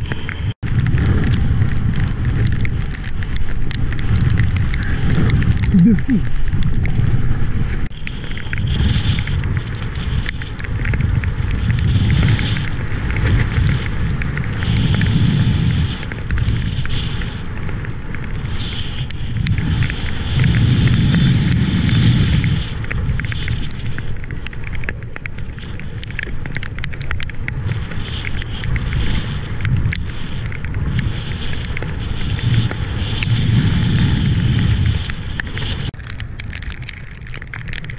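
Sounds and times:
wind buffeting microphone: 0.0s - 37.9s
water rushing and hissing: 4.0s - 6.7s.

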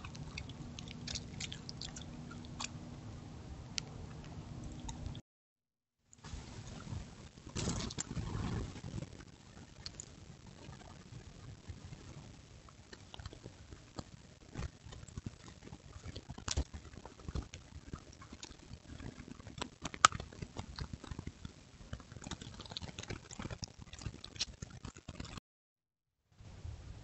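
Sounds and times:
coyote crunching bones: 0.0s - 2.8s, 12.9s - 25.2s.

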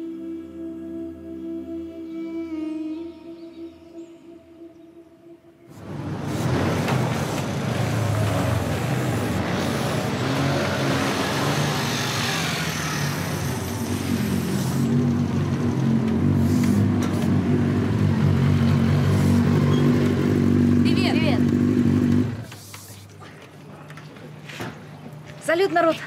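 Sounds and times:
motorcycle and scooter engines running: 5.7s - 22.6s.

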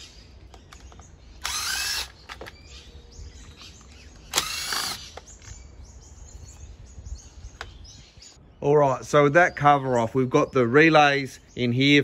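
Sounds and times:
faint birds chirping: 0.0s - 12.0s
cordless impact driver: 1.4s - 2.6s, 4.2s - 5.2s.

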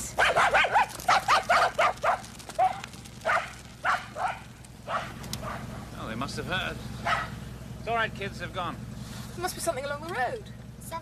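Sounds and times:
dogs barking: 0.0s - 6.0s, 7.0s - 7.4s.

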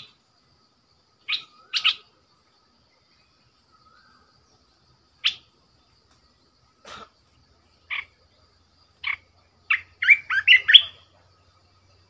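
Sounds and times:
bird song notes: 0.0s - 12.0s
bird call notes: 9.0s - 11.1s.

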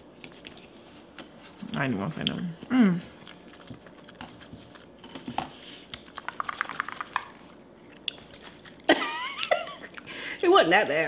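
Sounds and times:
person chewing: 0.2s - 1.6s, 3.0s - 8.9s, 9.8s - 10.1s.

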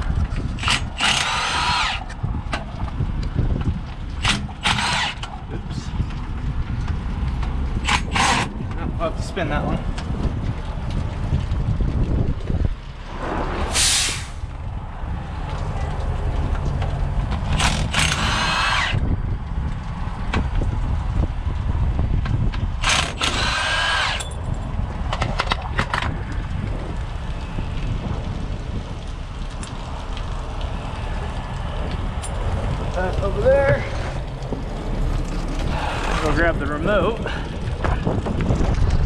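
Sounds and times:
low steady rumble: 0.0s - 39.0s
impact wrench bursts: 0.6s - 2.1s, 4.2s - 5.3s, 7.8s - 8.6s, 17.5s - 19.0s, 22.8s - 24.3s
sharp metal clicks: 0.6s - 2.7s, 4.2s - 5.4s, 7.8s - 8.8s, 17.3s - 19.0s, 22.8s - 24.4s.

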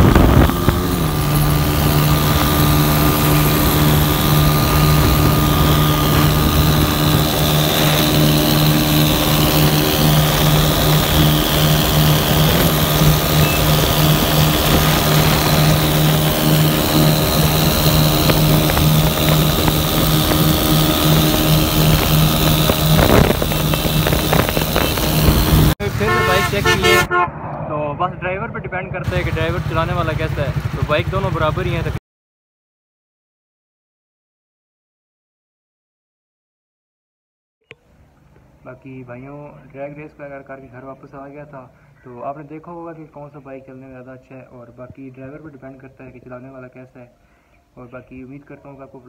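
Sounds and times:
motorcycle engine running hard: 0.0s - 27.1s, 29.1s - 32.0s
wind rushing past microphone: 0.0s - 30.2s.

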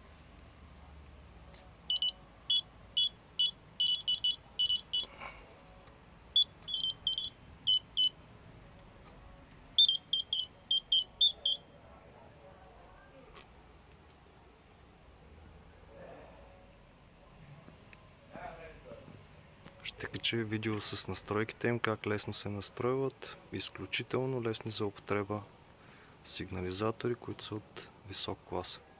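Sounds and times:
bite alarm beeping: 1.9s - 5.1s, 6.3s - 8.2s, 9.8s - 11.7s.

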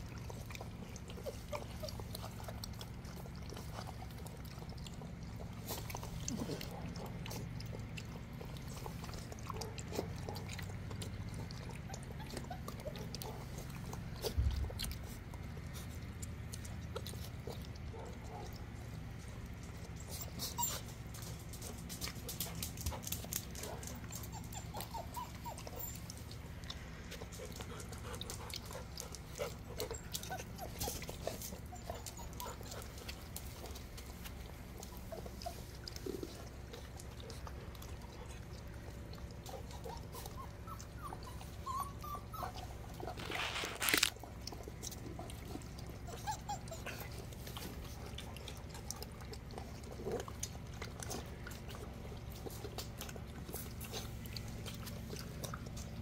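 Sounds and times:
puppies crunching kibble: 0.0s - 56.0s
puppies lapping water: 0.0s - 56.0s
puppy whimpers: 0.3s - 5.5s, 10.3s - 15.0s, 19.8s - 21.4s, 23.7s - 26.5s, 28.6s - 47.8s.

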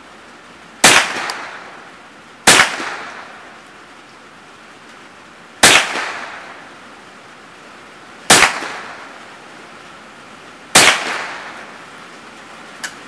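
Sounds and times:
rifle shots with echo: 0.8s - 3.6s, 5.6s - 6.7s, 8.3s - 9.2s, 10.7s - 11.8s.

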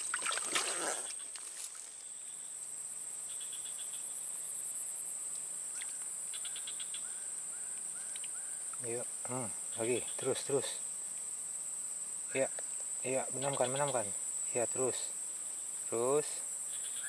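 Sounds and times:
insects chirring: 0.0s - 17.0s
short chirping calls: 5.7s - 8.9s, 16.7s - 17.0s.

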